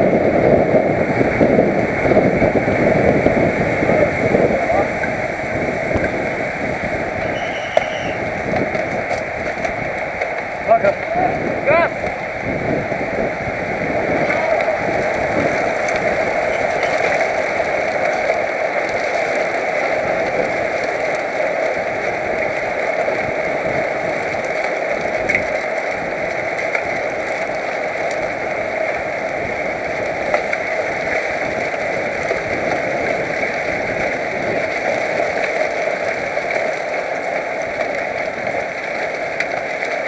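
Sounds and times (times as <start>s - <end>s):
wind rushing: 0.0s - 18.6s
bicycle tyres on road: 0.0s - 40.0s.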